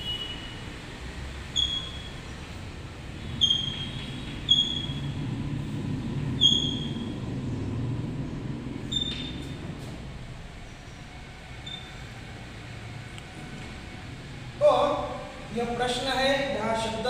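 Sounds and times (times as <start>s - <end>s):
chalk squeaking on blackboard: 3.4s - 5.1s, 6.4s - 7.1s.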